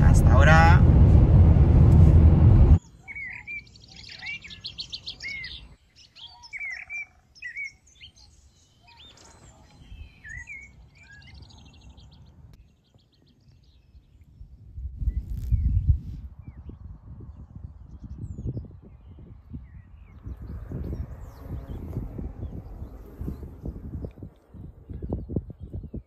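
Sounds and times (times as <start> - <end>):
loud low rumble: 0.0 - 2.8
songbirds chirping and trilling: 2.8 - 26.0.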